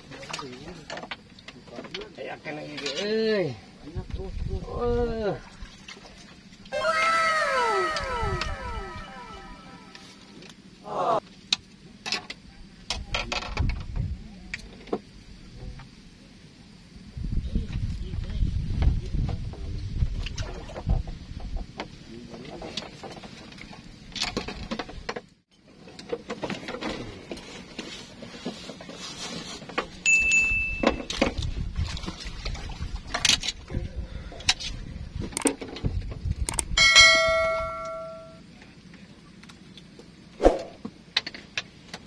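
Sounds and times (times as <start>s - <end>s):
bell ding: 30.1s - 31.0s, 36.8s - 38.4s.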